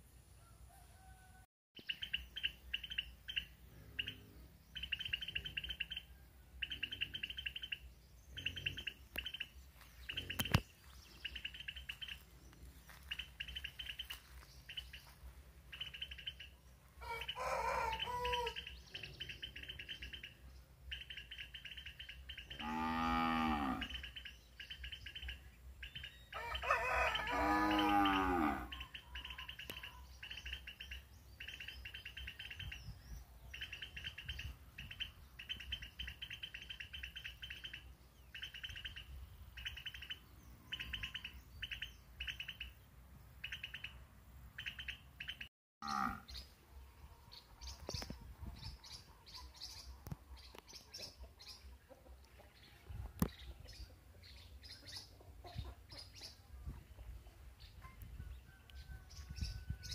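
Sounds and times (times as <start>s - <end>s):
high chirping bursts: 1.8s - 10.6s
cow mooing: 22.5s - 23.9s, 27.2s - 28.7s, 45.8s - 46.2s.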